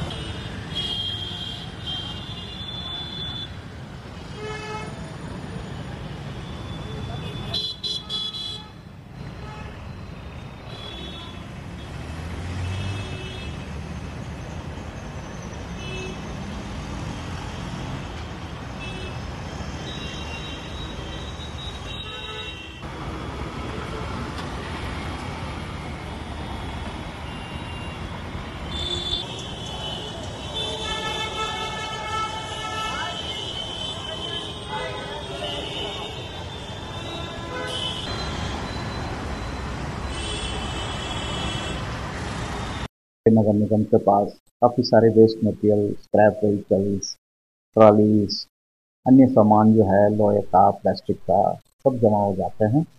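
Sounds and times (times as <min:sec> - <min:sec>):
traffic hum: 0:00.0 - 0:47.2, 0:47.8 - 0:48.5, 0:49.1 - 0:52.9
vehicle horn beeps: 0:28.7 - 0:41.8.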